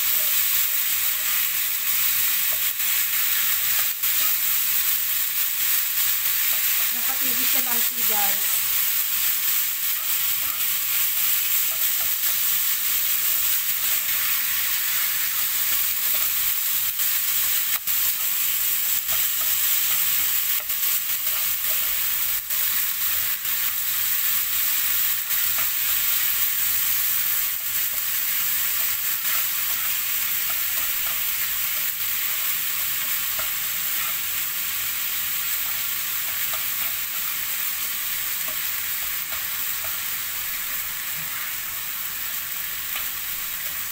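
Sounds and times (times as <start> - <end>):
meat and onion sizzling: 0.0 - 43.9
utensil clicking against pan: 27.7 - 34.2, 35.5 - 37.3.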